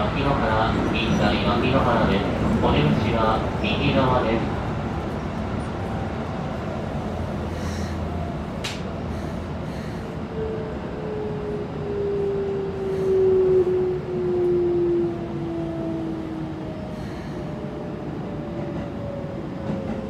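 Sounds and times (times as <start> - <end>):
rail running noise: 0.0 - 20.0
sharp click: 8.6 - 8.9.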